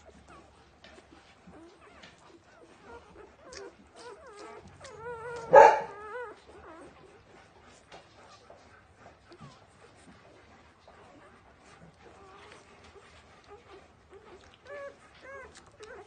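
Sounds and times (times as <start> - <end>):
puppies squeaking and whimpering: 0.0 - 16.0
puppies suckling clicks: 0.0 - 16.0.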